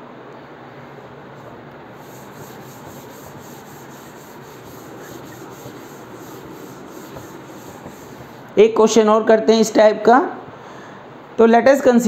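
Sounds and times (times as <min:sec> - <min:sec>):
duster scrubbing chalkboard: 0:01.4 - 0:08.6.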